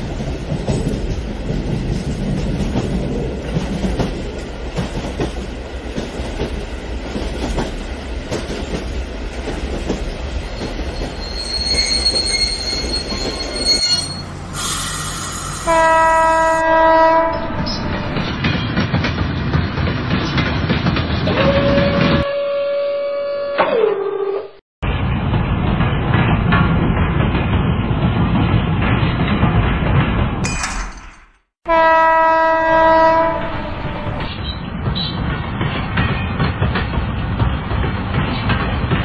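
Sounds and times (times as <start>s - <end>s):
wheels clicking over rail joints: 0.0s - 11.8s
electronic locomotive horn: 13.8s - 18.3s, 21.3s - 24.6s, 31.7s - 34.3s.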